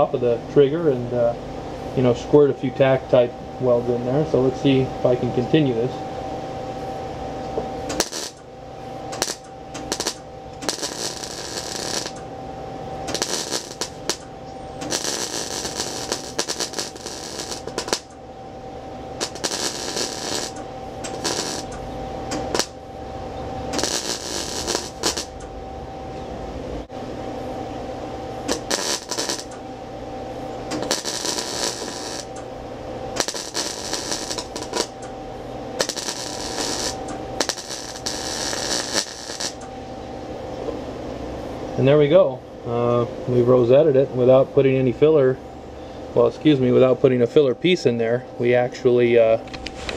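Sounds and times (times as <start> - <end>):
steady hum: 0.0 - 49.9
welding arc crackling: 7.8 - 12.3, 13.0 - 18.3, 18.9 - 22.9, 23.6 - 25.5, 28.3 - 29.6, 30.6 - 39.8.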